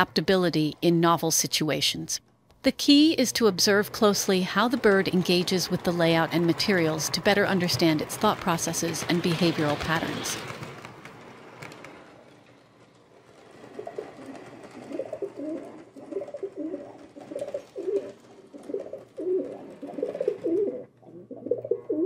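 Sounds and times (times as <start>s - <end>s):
pigeon cooing: 13.7s - 22.0s.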